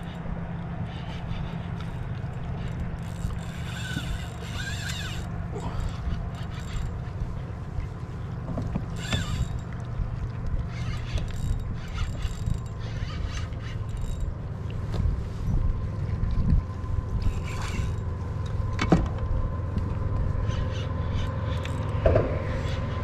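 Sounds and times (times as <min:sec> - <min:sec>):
fishing reel whirring and clicking: 0:00.0 - 0:07.6, 0:08.7 - 0:14.4, 0:17.1 - 0:18.6, 0:20.4 - 0:23.0
steady low rumble: 0:00.0 - 0:23.0.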